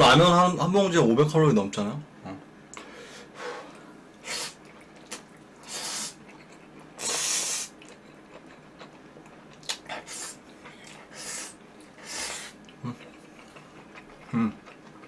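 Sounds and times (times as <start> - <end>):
man slurping noodles: 5.6 - 6.3, 7.0 - 7.8, 11.0 - 12.6
wet mouth clicks: 9.6 - 11.0.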